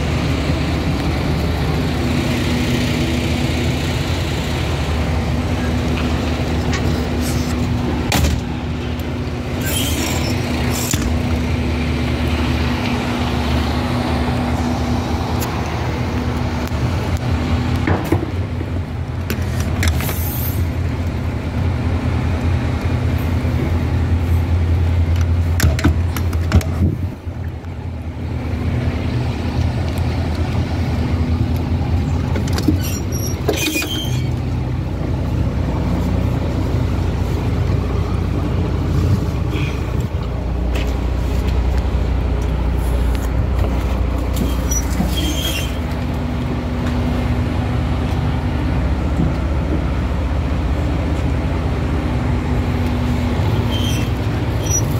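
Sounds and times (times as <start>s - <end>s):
diesel engine idling: 0.0s - 54.9s.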